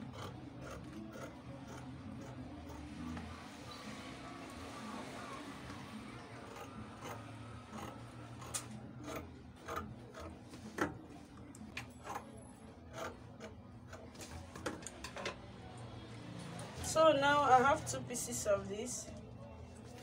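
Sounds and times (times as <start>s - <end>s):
scissors snipping fabric: 0.0s - 3.3s, 6.4s - 11.0s.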